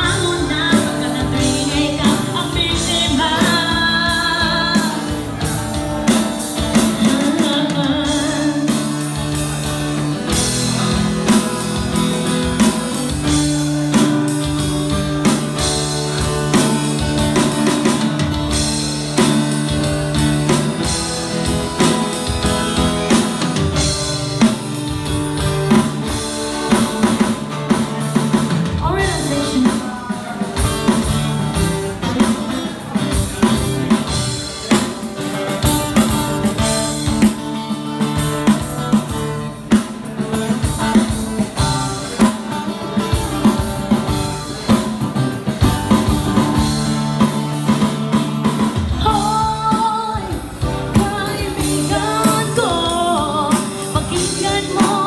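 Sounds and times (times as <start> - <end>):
acoustic guitar: 0.0 - 55.0
drum beat played with sticks: 0.0 - 55.0.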